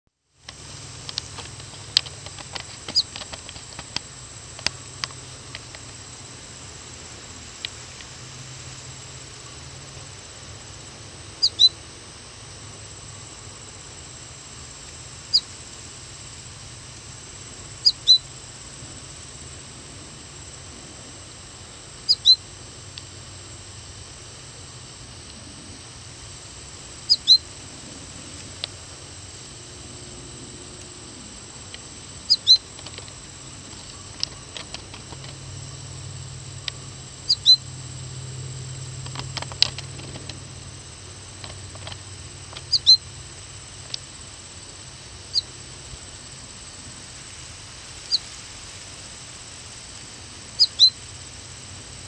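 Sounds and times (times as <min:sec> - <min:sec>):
goldfinch calling: 0:02.3 - 0:04.0, 0:11.4 - 0:11.8, 0:15.3 - 0:15.5, 0:17.8 - 0:18.3, 0:22.1 - 0:22.4, 0:27.0 - 0:27.4, 0:32.2 - 0:33.1, 0:37.3 - 0:37.7, 0:41.8 - 0:43.0, 0:50.6 - 0:51.0.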